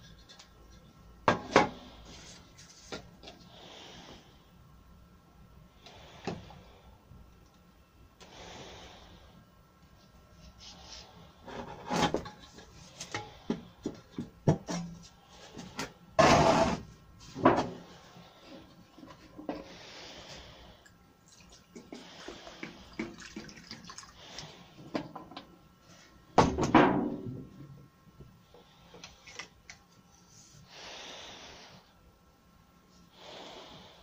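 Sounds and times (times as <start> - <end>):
knock and scrape on workbench: 16.2 - 16.8, 17.4 - 17.8.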